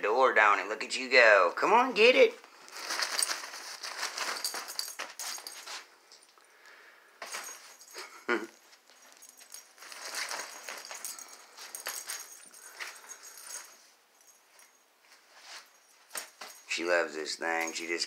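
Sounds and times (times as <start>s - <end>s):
nylon tunnel rustling: 2.5s - 5.9s, 9.0s - 13.7s.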